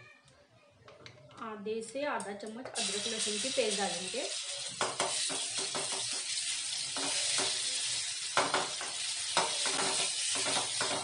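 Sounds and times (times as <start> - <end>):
metal spoon scraping and knocking wok: 2.8 - 11.0
paste sizzling in hot oil: 2.8 - 11.0.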